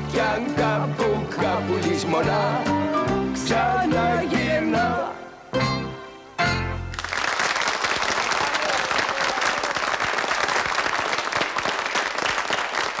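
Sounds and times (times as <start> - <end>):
audience applause: 6.9 - 13.0.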